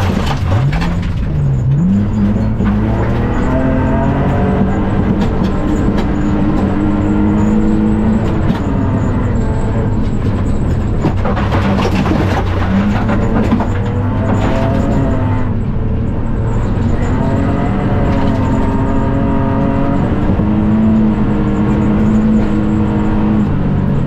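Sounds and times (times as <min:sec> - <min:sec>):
gravel rattling against car: 0:00.0 - 0:24.0
rally car engine: 0:00.0 - 0:24.0.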